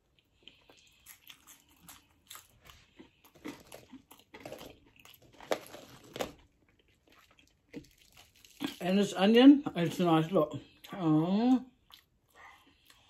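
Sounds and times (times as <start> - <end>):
person chewing crunchy food: 0.0 - 9.1, 11.7 - 13.0.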